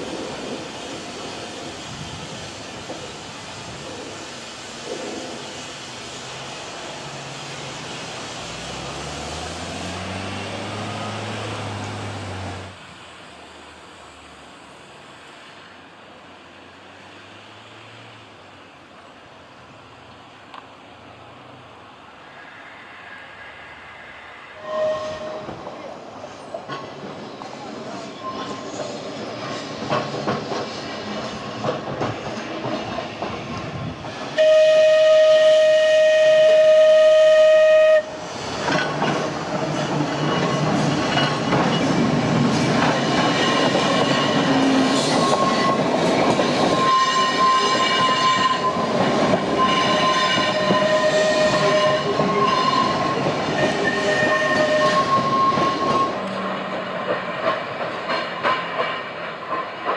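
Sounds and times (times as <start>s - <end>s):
electric tram running past: 0.0s - 59.9s
tram wheels squealing: 22.3s - 59.9s
tram warning horn: 24.6s - 25.6s, 34.4s - 38.2s, 46.7s - 48.9s, 49.5s - 56.8s.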